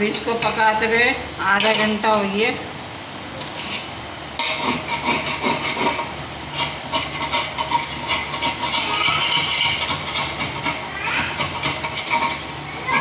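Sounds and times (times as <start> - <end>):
spatula scraping in metal pot: 3.4 - 13.0.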